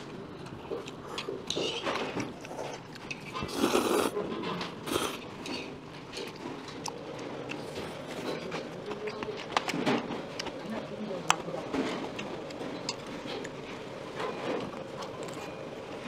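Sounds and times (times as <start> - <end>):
noodles being slurped: 2.4 - 4.2, 4.8 - 5.3.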